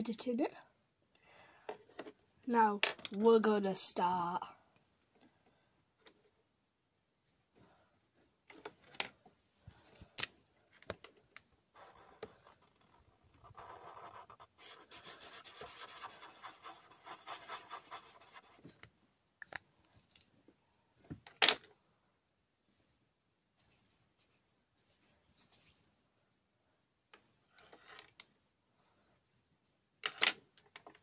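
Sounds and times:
marker pen scratching on paper: 11.7 - 18.8.

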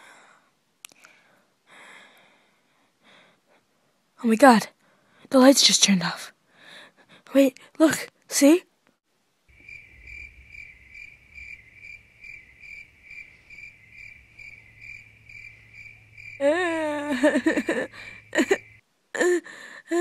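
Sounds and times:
cricket chirping: 9.5 - 18.8
person crying loudly: 16.4 - 18.6, 19.2 - 20.0.

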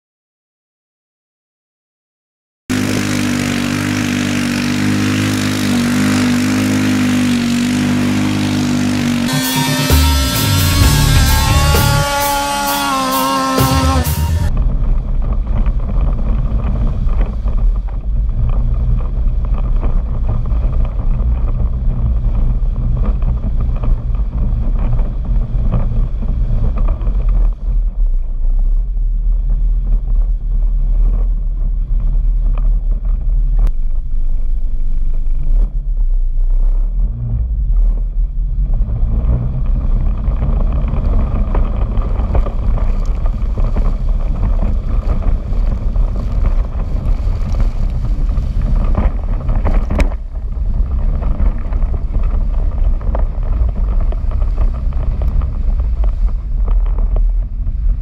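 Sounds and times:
vehicle engine running: 2.7 - 58.0
wind on microphone: 13.4 - 58.0.

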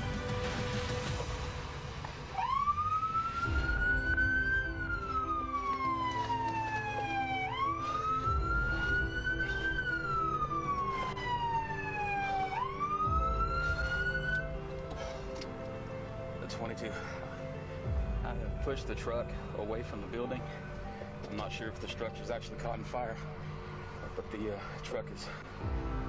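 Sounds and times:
police siren wailing: 1.2 - 18.0.

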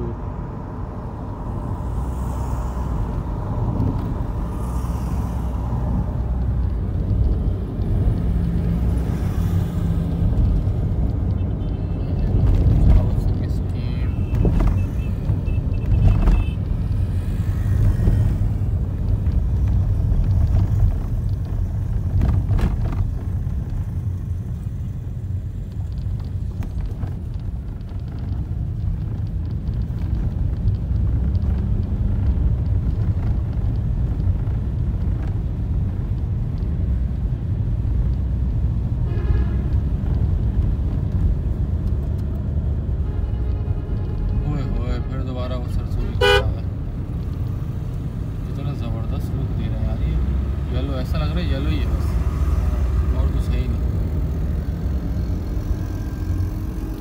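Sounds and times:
car road and engine rumble: 0.0 - 57.0.

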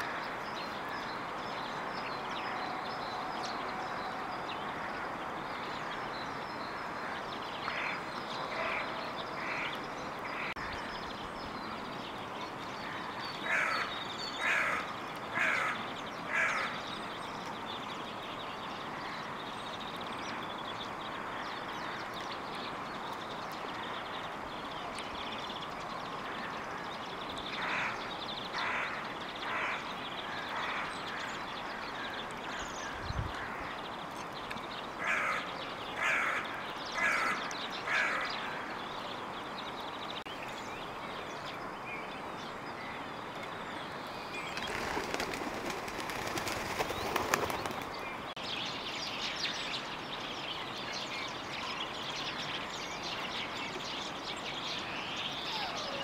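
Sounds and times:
crow cawing: 13.5 - 16.8, 28.6 - 33.6, 35.0 - 38.7.

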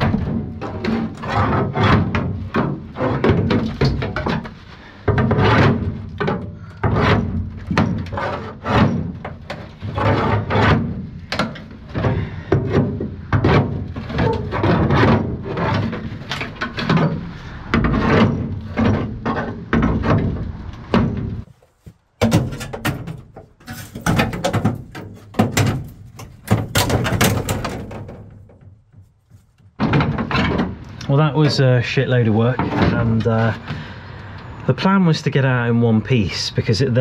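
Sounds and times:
sheet metal banging and scraping: 0.0 - 33.7.

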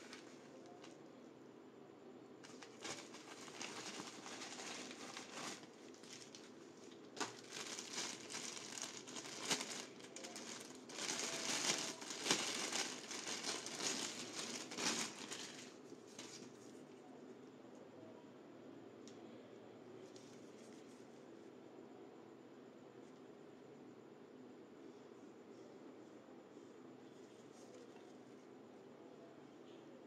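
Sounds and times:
plastic packaging crinkling: 0.0 - 1.0, 2.4 - 16.6.

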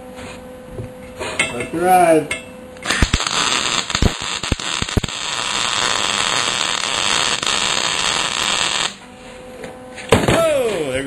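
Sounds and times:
welding arc crackling hiss: 2.8 - 9.0
welding arc sputtering pops: 2.8 - 9.0.

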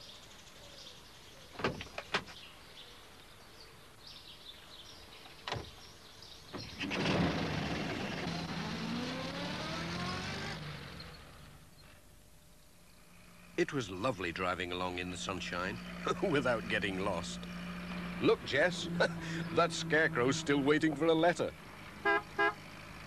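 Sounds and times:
van engine starting and running: 6.5 - 11.9, 13.0 - 23.0.

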